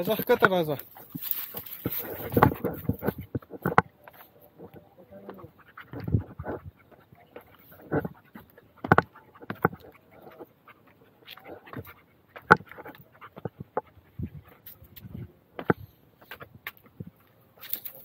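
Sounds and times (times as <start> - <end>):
footsteps on loose rock: 0.0 - 4.8, 14.6 - 18.0
dog panting: 0.0 - 16.6.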